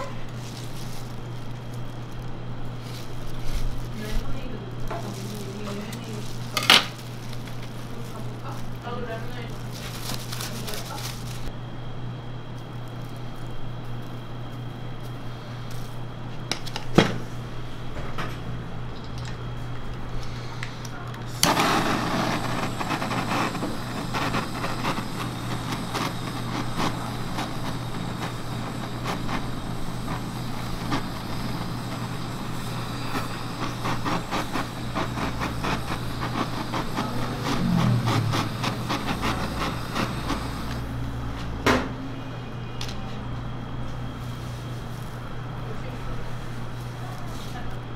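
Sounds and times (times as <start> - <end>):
blowtorch hissing: 0.0 - 11.6, 12.7 - 42.2
low hum: 21.8 - 41.6.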